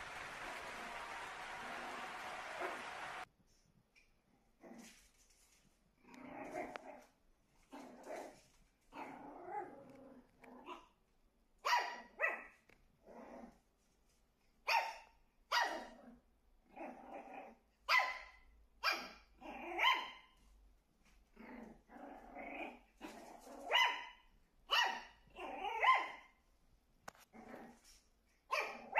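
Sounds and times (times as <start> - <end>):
puppy growling: 6.0 - 11.0, 13.0 - 13.6, 15.7 - 17.7, 19.4 - 19.9, 21.3 - 23.7, 25.3 - 25.9, 27.2 - 28.0
puppy barking: 11.6 - 12.6, 14.6 - 16.0, 17.8 - 20.4, 23.0 - 26.4, 28.5 - 28.9.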